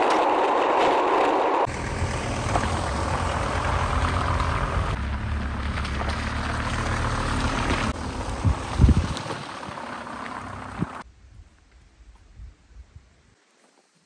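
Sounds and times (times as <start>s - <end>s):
tyres rolling over gravel: 0.0s - 11.0s
low engine hum: 1.5s - 11.0s.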